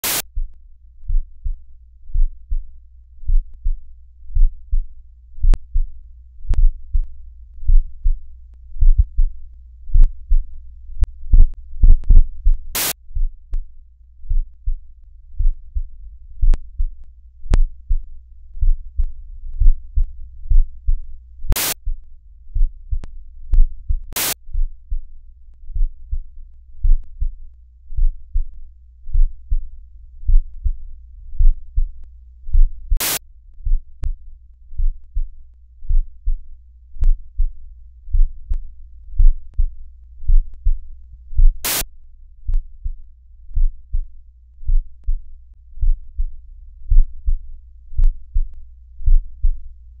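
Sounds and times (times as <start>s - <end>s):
static hiss bursts: 0.0s - 0.2s, 12.8s - 13.0s, 21.5s - 21.8s, 24.1s - 24.4s, 33.0s - 33.2s, 41.6s - 41.8s
heartbeat thumps: 0.0s - 8.2s, 8.8s - 30.8s, 31.4s - 34.2s, 34.8s - 41.8s, 42.4s - 44.1s, 44.7s - 49.6s
steady low hum: 0.0s - 50.0s
deep bass thumps: 8.8s - 13.7s, 15.4s - 25.1s, 39.2s - 40.8s, 45.8s - 49.6s
faint tick: 37.0s - 37.2s, 38.2s - 41.2s, 46.9s - 49.6s.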